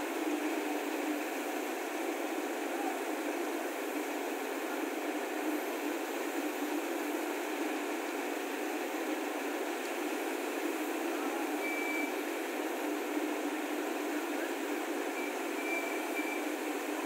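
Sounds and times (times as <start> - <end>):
high warning beeps: 11.6 - 12.1, 15.2 - 16.5.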